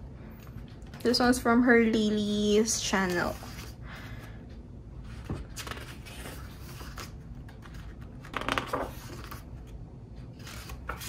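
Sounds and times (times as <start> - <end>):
book pages turning: 2.8 - 3.8, 5.0 - 11.0.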